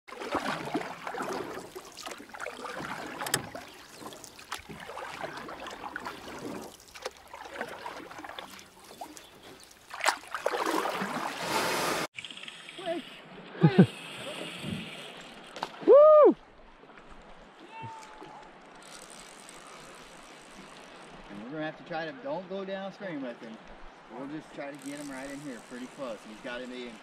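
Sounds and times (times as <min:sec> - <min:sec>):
water slapping boat hull: 0:00.1 - 0:12.1.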